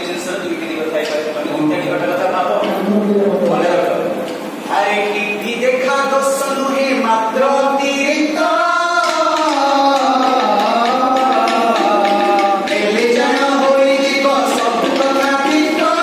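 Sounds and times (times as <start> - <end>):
men singing together: 6.3 - 16.0.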